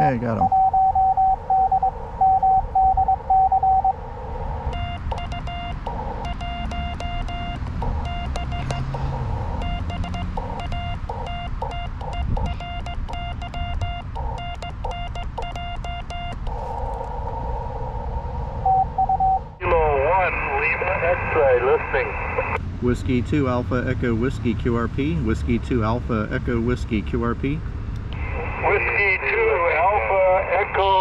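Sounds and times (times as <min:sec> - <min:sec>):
morse code keyed tone: 0:00.3 - 0:04.0, 0:04.7 - 0:16.5, 0:18.6 - 0:19.5
receiver hiss: 0:16.3 - 0:22.6, 0:28.2 - 0:31.0.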